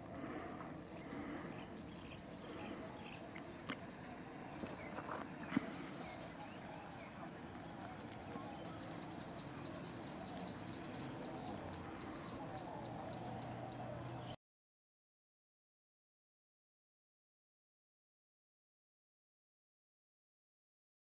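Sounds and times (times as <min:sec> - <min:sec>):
distant voices: 0:00.0 - 0:14.4.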